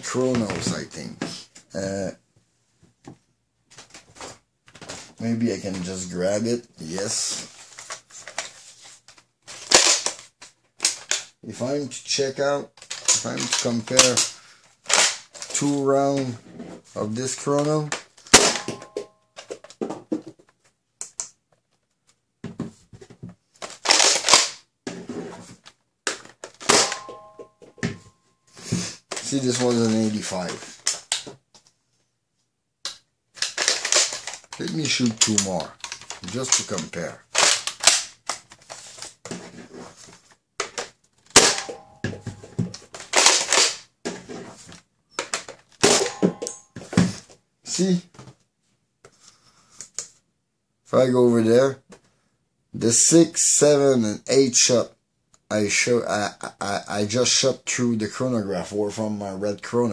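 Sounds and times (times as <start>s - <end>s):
foam blaster clacks and pops: 23.7s - 24.6s, 32.9s - 38.5s
sharp crack: 41.3s - 41.9s.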